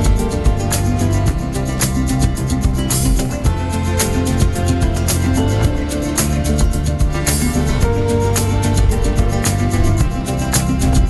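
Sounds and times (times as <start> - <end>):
music with quick beat: 0.0 - 11.0.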